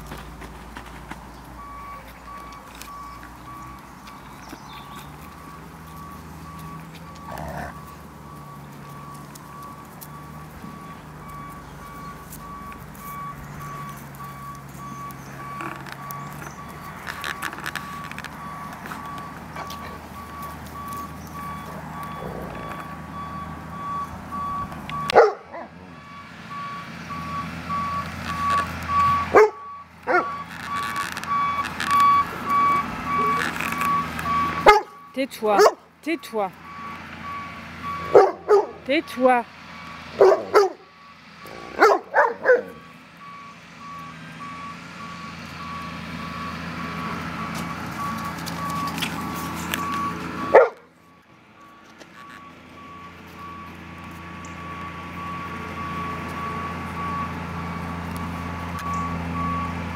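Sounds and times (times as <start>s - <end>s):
reversing alarm beeping: 1.5s - 59.9s
dog barking: 25.1s - 25.8s, 29.3s - 30.4s, 34.6s - 35.0s, 35.6s - 35.8s, 38.1s - 38.8s, 40.2s - 40.8s, 41.7s - 42.8s, 50.5s - 50.8s.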